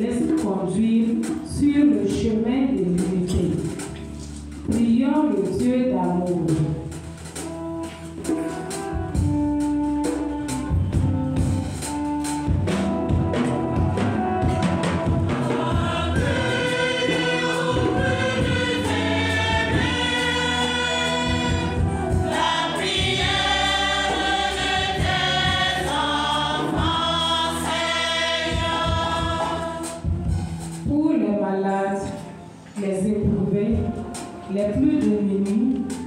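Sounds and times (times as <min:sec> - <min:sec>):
low accompaniment: 0:00.0 - 0:36.0
choir singing a hymn: 0:13.2 - 0:30.7.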